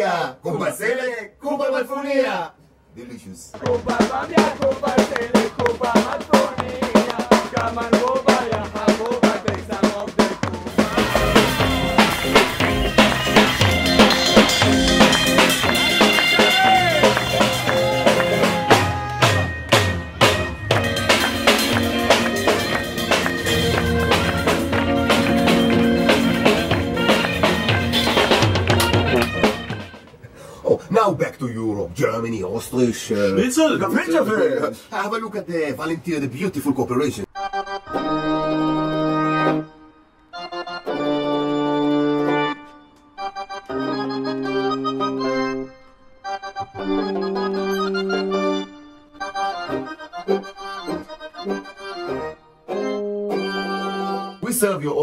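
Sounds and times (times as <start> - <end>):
brass horns playing lively tune: 3.6 - 30.2, 37.3 - 54.5
drum kit beat: 3.6 - 30.3.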